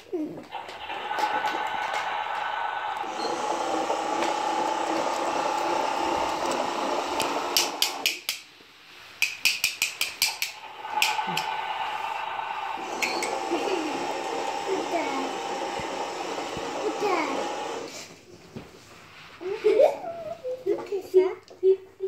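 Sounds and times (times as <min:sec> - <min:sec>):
steady hum: 0:00.5 - 0:08.1, 0:10.4 - 0:18.0.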